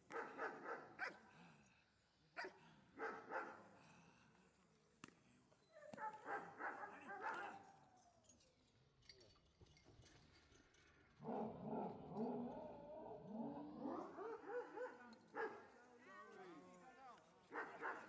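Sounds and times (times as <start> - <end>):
dog barking: 0.1 - 1.2, 2.4 - 3.6, 5.8 - 7.6, 14.1 - 15.7, 17.5 - 18.0.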